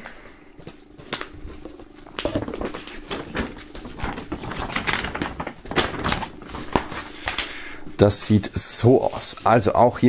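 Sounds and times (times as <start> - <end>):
paper poster rustling and crackling: 0.6 - 10.0.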